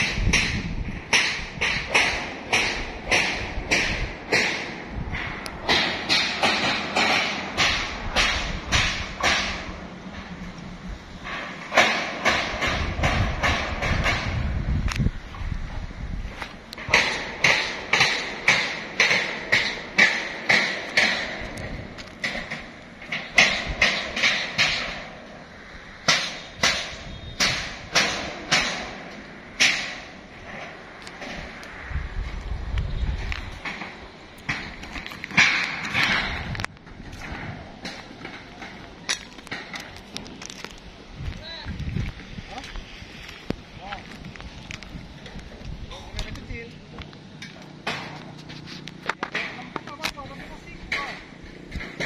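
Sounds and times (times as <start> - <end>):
hammer striking steel roof frame: 0.0 - 10.6, 11.2 - 14.7, 16.8 - 31.6, 33.2 - 40.0, 47.4 - 48.4, 49.2 - 52.0
footsteps crunching on stony ground: 38.8 - 50.3.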